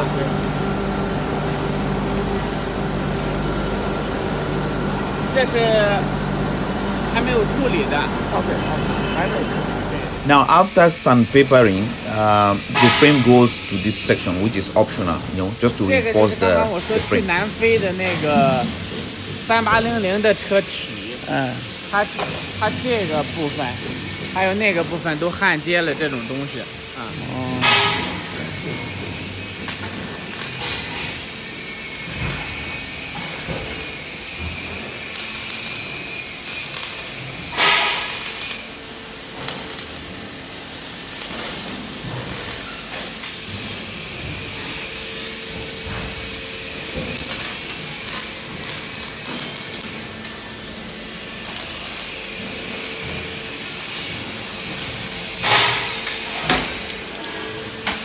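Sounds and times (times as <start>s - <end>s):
steady hiss: 9.2s - 34.2s
knocks and clanks of steel: 12.7s - 13.3s, 27.6s - 31.2s, 36.9s - 38.5s, 53.0s - 58.0s.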